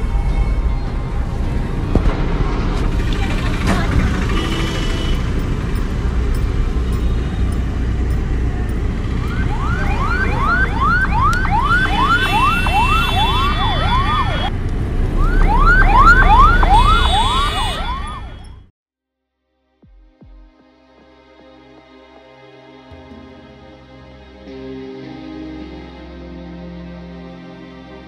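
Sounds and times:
low vehicle rumble: 0.0 - 18.7
ambulance siren yelping: 8.6 - 14.5, 15.1 - 18.6.

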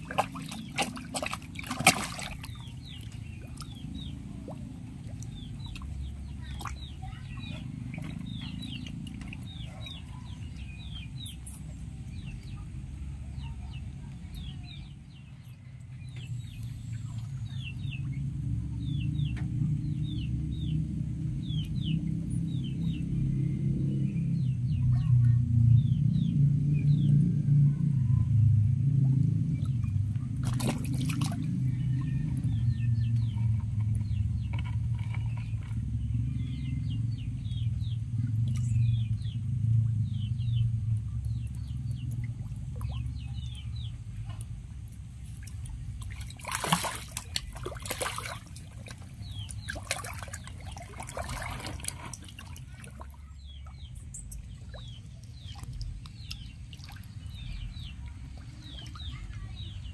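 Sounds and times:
fish thrashing in water: 0.0 - 12.0, 28.8 - 36.1, 37.3 - 59.9
muddy water sloshing: 0.0 - 24.4, 28.4 - 59.9
low rumble: 0.0 - 59.9.

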